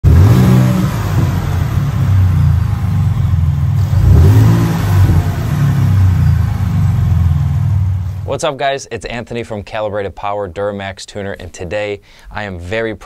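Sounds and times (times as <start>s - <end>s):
car engine revving: 0.0s - 8.3s.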